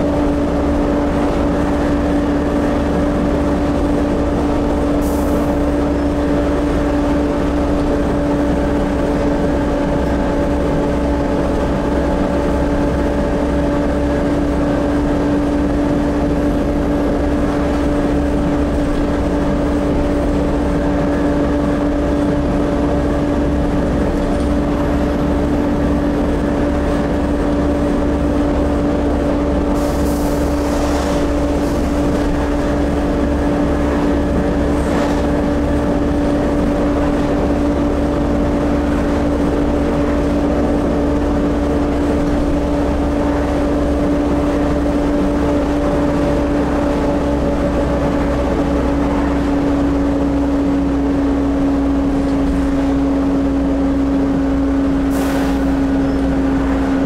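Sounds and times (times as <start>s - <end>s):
bus engine drone: 0.0s - 57.0s
brief air hiss: 55.1s - 55.8s.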